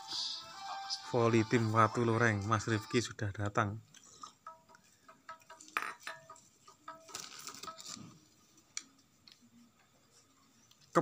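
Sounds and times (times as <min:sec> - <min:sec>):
small objects clinking: 0:05.3 - 0:08.1.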